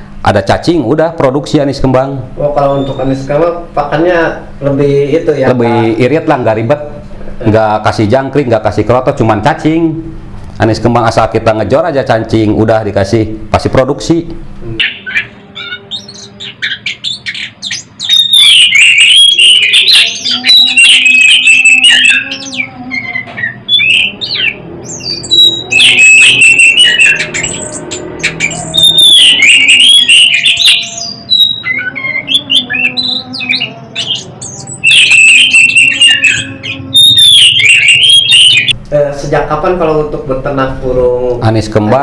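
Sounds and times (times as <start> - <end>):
thrush singing whistled notes: 2.6 - 3.3, 14.8 - 38.8.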